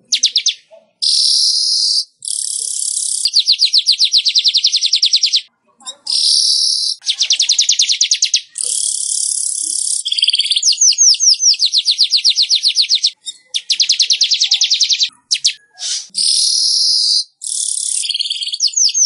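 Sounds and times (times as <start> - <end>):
bird chattering trills: 0.0 - 19.0
bird buzzy wheezes: 14.4 - 18.0.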